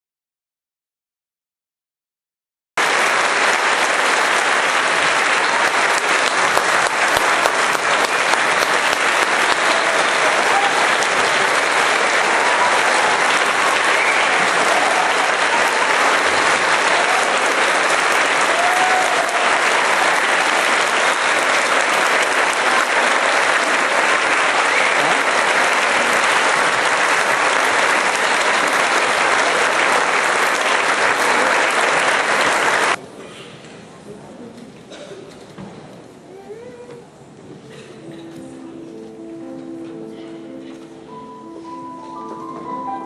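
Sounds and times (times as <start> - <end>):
audience applauding: 2.8 - 33.0.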